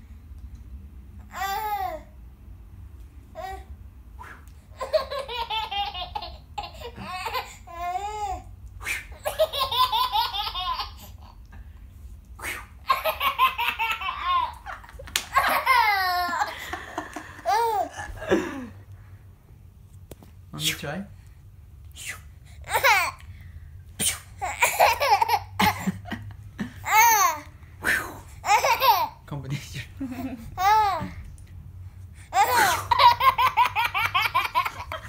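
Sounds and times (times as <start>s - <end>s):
baby laughing: 4.7s - 8.5s, 9.1s - 11.5s, 12.8s - 18.5s, 22.6s - 23.2s, 24.4s - 26.1s, 26.8s - 27.5s, 28.4s - 29.2s, 30.2s - 31.2s, 32.3s - 35.0s.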